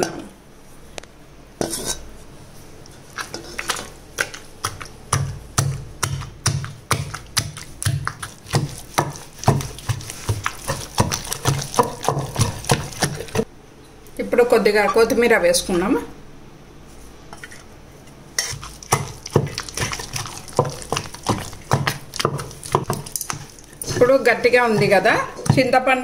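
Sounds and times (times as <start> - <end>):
pestle pounding in stone mortar: 3.2 - 13.5, 18.4 - 25.8.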